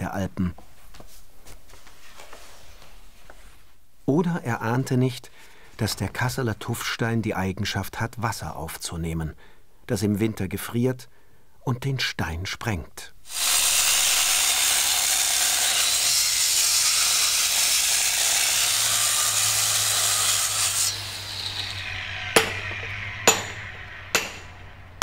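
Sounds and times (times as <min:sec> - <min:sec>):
angle grinder cutting stone: 0:13.3 - 0:25.0
hammer blows on chisel: 0:21.4 - 0:25.0.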